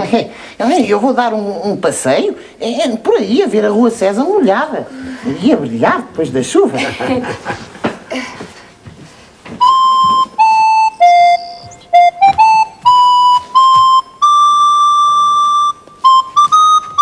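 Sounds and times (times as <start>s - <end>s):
flute playing a slow tune: 9.6s - 17.0s.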